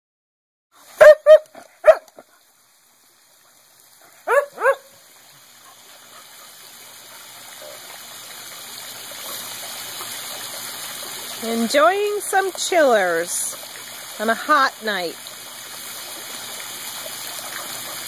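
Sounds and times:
dog barking: 1.0s - 2.1s, 4.2s - 4.9s.

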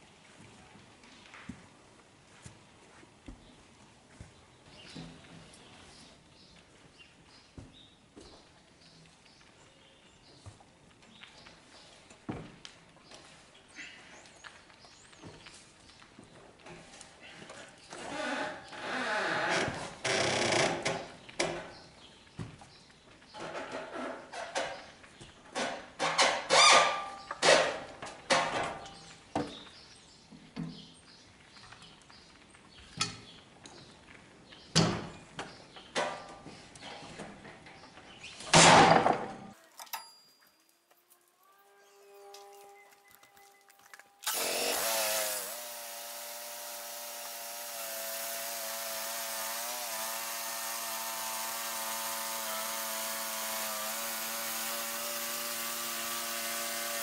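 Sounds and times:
gas engine cranking and running: 44.2s - 57.0s.

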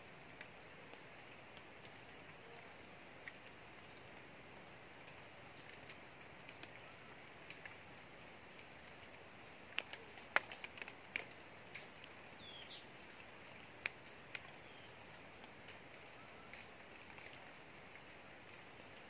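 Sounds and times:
ticks and rustles in dry leaves: 0.3s - 19.0s
small bird chirp: 12.4s - 12.9s.

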